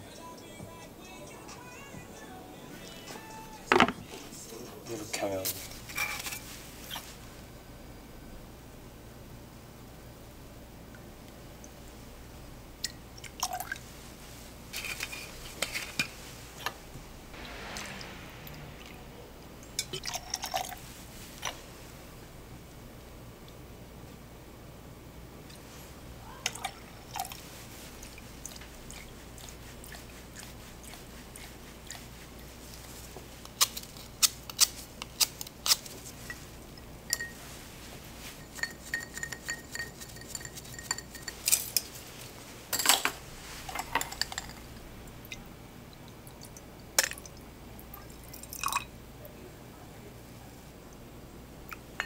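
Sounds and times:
glassware and utensils clinking: 3.7s - 4.1s, 5.9s - 6.5s, 36.2s - 37.6s, 38.2s - 42.0s, 42.7s - 44.8s.

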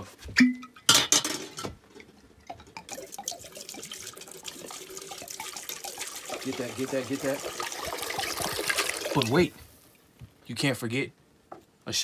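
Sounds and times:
liquid pouring into metal pot: 2.6s - 9.5s.

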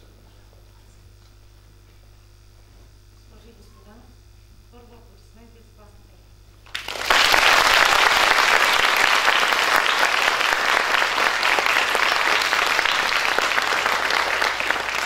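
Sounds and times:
audience applauding: 6.7s - 15.0s.

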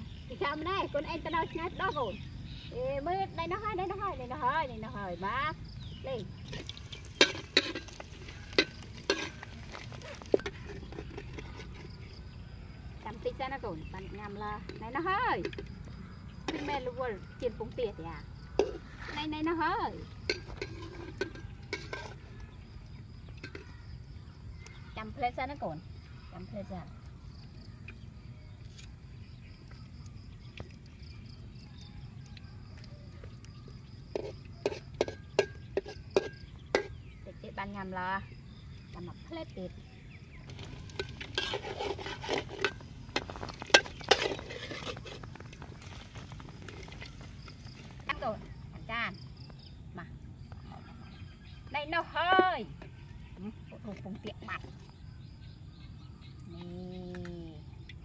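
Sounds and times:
metal spatula scraping a pan: 6.4s - 12.1s, 18.6s - 19.3s, 20.3s - 22.2s, 40.5s - 47.3s.

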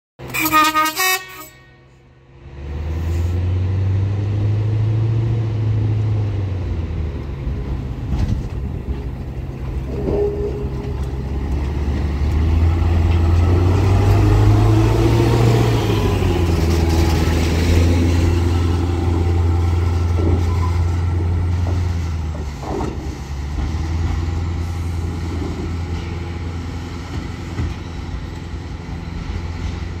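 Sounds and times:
horn toots: 0.2s - 2.0s
diesel engine droning: 0.2s - 30.0s.

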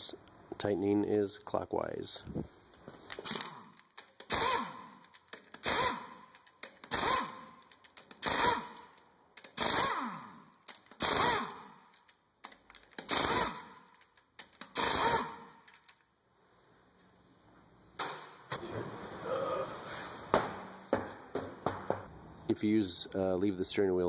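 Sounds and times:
pneumatic impact wrench rattling: 3.0s - 16.0s.

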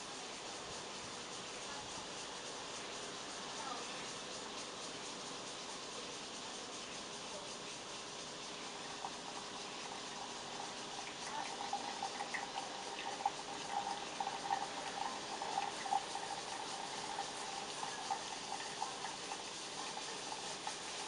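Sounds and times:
steady background hiss: 0.0s - 21.0s
liquid trickling and splashing: 8.2s - 21.0s
water pouring in thin stream: 8.6s - 21.0s.

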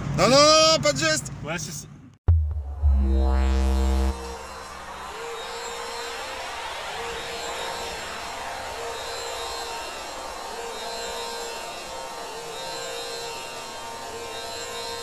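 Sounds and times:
short recurring note: 2.3s - 8.9s
ambient drone music: 2.3s - 14.8s.

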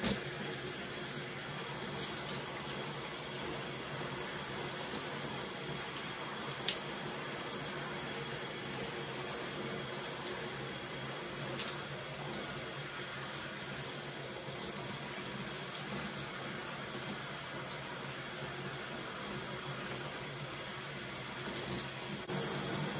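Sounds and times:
shower spray running: 0.0s - 22.9s.

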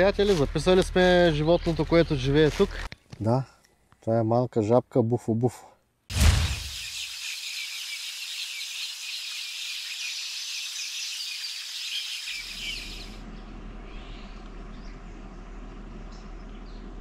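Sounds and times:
low outdoor hum and rumble: 0.0s - 2.9s, 12.5s - 17.0s
birds chirping: 0.0s - 3.1s, 6.4s - 17.0s.

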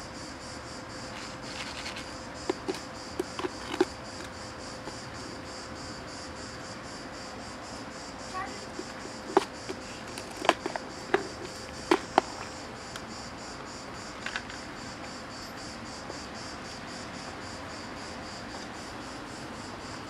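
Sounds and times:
insect chirring: 0.0s - 20.0s
clicks of kibble and food tub: 1.5s - 4.3s, 8.4s - 12.5s.

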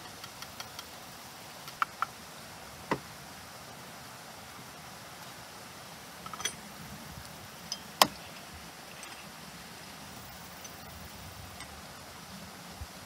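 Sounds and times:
steady background hiss: 0.0s - 13.0s
light clicks of metal gear: 10.3s - 11.8s.

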